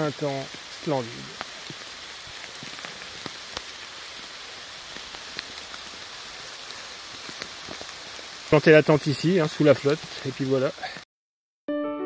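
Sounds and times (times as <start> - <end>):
rain falling on trees and grass: 0.0 - 11.0
single raindrops: 0.4 - 8.5.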